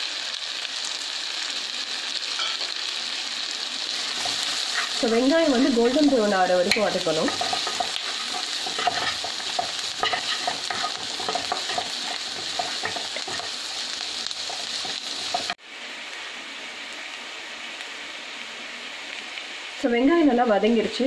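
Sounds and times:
onions sizzling in pan: 0:00.0 - 0:21.0
wooden spatula stirring in pan: 0:04.0 - 0:15.6.

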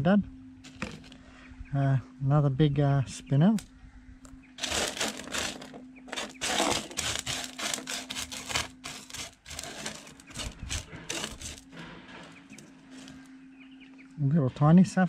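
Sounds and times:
gravel scraping across steel table: 0:00.6 - 0:01.2, 0:04.6 - 0:13.4.

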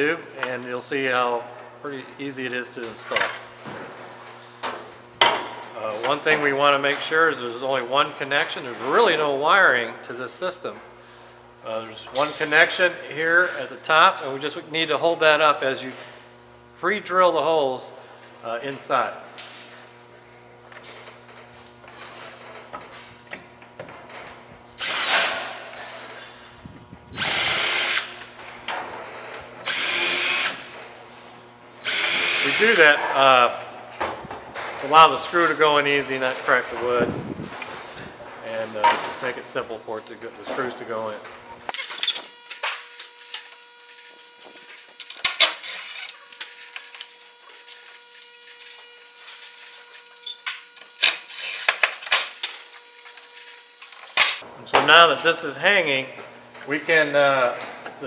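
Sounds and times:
cordless drill boring into wood: 0:24.8 - 0:25.4, 0:27.1 - 0:28.3, 0:29.6 - 0:30.6, 0:31.8 - 0:32.8, 0:45.4 - 0:46.2, 0:51.0 - 0:51.8.

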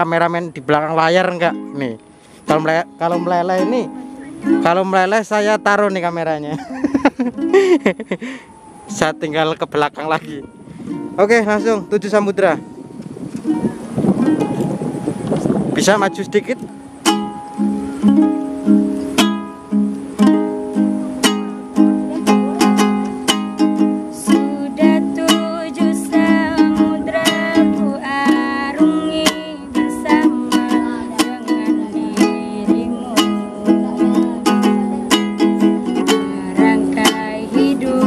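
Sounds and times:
ukulele strumming chords: 0:01.1 - 0:08.1, 0:08.9 - 0:38.0
woman singing: 0:24.0 - 0:38.0.

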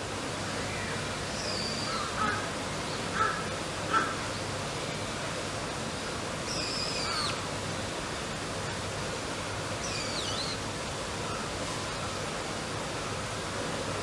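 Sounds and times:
downward sliding whistled calls: 0:06.5 - 0:07.4, 0:09.8 - 0:10.6.

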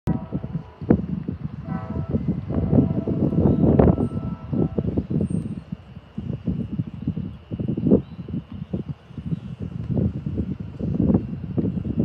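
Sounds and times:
train horn chord: 0:00.1 - 0:01.0, 0:01.6 - 0:05.0
wind rumble on microphone: 0:00.1 - 0:12.0.

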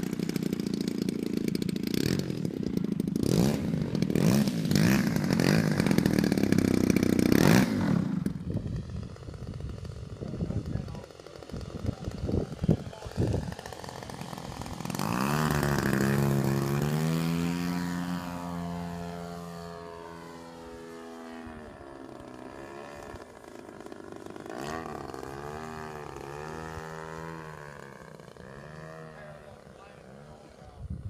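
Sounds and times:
model plane engine droning: 0:00.0 - 0:31.0.

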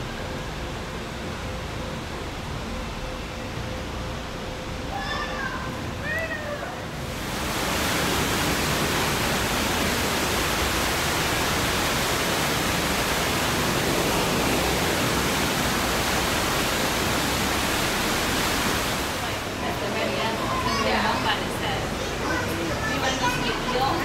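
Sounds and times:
waterfall rushing into pool: 0:05.0 - 0:24.0.

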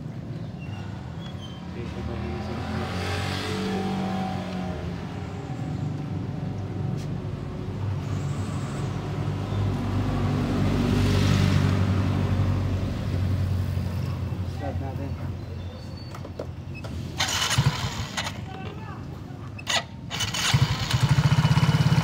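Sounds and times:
scooter engine humming: 0:17.2 - 0:22.0.

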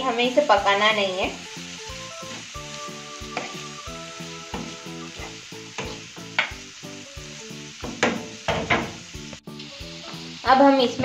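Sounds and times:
soft background music: 0:00.0 - 0:11.0
vegetables sizzling in a pan: 0:00.0 - 0:11.0
spatula scraping a pan: 0:04.5 - 0:06.6.

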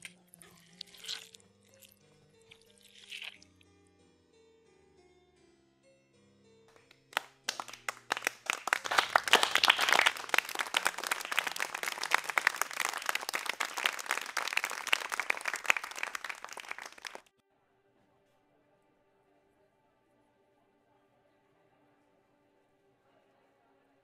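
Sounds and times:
hands clapping: 0:06.7 - 0:17.3.

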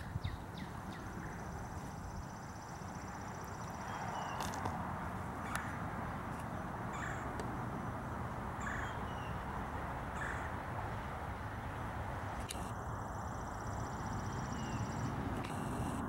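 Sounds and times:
bird harsh calls: 0:00.0 - 0:04.6, 0:05.4 - 0:05.8, 0:06.4 - 0:10.6, 0:13.6 - 0:15.2
steady background noise: 0:00.0 - 0:16.0.

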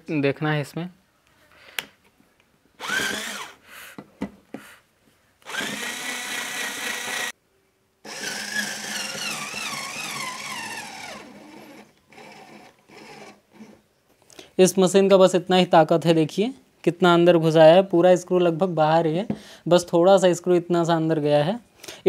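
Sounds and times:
cordless screwdriver motor whine: 0:02.8 - 0:03.6, 0:05.4 - 0:07.3, 0:08.1 - 0:13.8.

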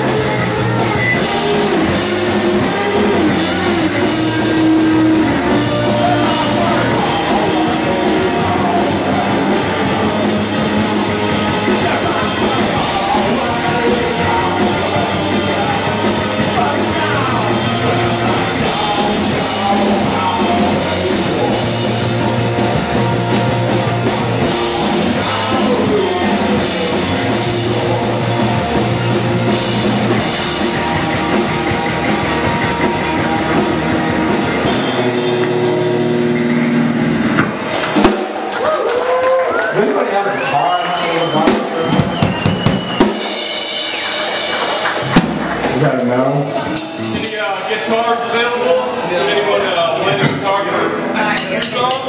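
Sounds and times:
electric bass: 0:00.0 - 0:39.8, 0:41.2 - 0:52.0
electric guitar: 0:00.0 - 0:40.5
drum kit: 0:00.0 - 0:48.3.

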